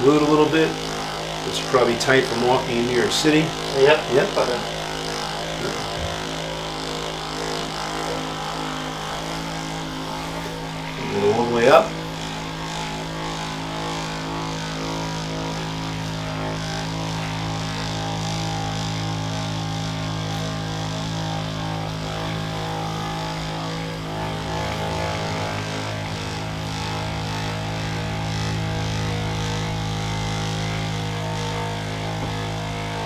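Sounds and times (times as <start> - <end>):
massage gun motor humming: 0.0 - 33.0.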